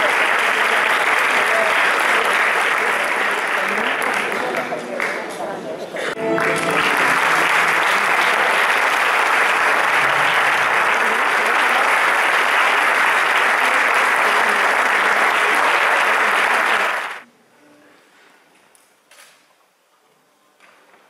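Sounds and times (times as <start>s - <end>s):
audience applauding: 0.0s - 5.3s, 6.1s - 17.2s.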